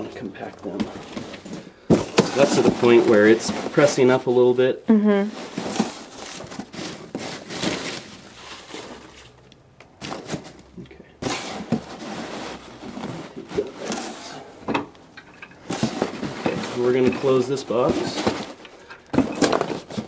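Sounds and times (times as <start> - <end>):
packing peanuts rustling: 5.4 - 14.5.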